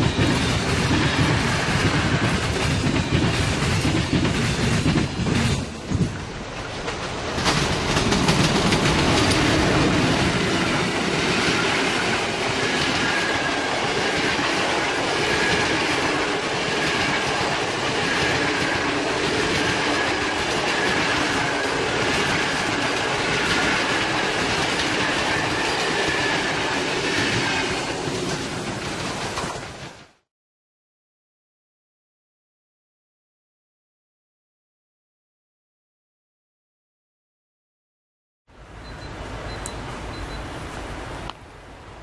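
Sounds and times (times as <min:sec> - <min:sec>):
clickety-clack over rail joints: 0:00.0 - 0:30.1
train wheels rushing on rail: 0:00.0 - 0:30.2.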